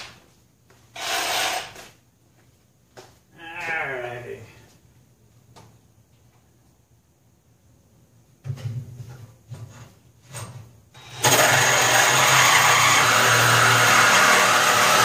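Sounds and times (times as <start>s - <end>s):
power cutting tool cutting metal: 11.0s - 15.0s.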